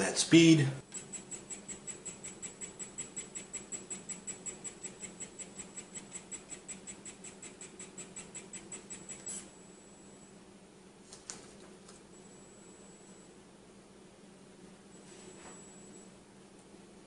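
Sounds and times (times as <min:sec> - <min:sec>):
faint steady hum: 0:00.0 - 0:17.0
pen feed motor ticking: 0:00.8 - 0:09.5.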